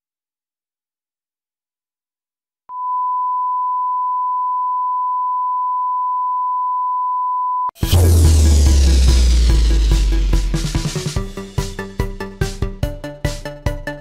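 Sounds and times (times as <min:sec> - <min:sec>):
steady test tone: 0:07.8 - 0:11.4
loud music with bass drum: 0:07.8 - 0:13.9.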